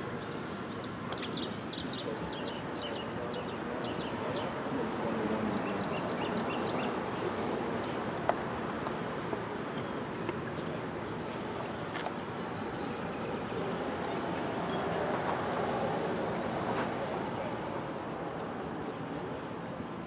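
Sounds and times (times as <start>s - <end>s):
outdoor background noise: 0.0s - 20.0s
birds chirping: 5.4s - 8.0s.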